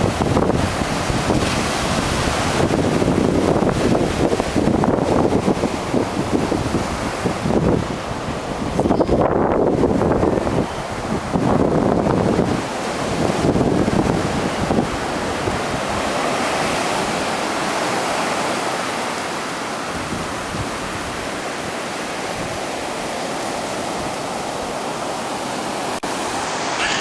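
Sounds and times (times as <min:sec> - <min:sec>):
ocean surf breaking: 0:00.0 - 0:27.0.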